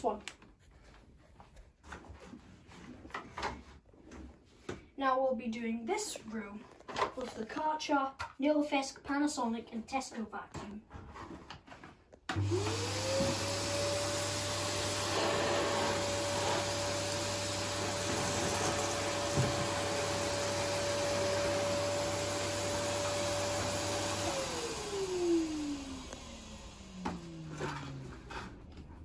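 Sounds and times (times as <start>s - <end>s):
vacuum cleaner motor whine: 12.3s - 29.0s.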